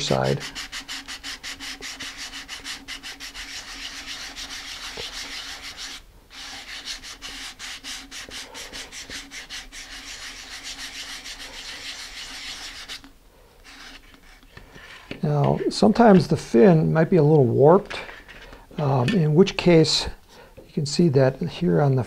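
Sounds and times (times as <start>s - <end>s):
sandpaper scrubbing back and forth: 0.0s - 15.8s.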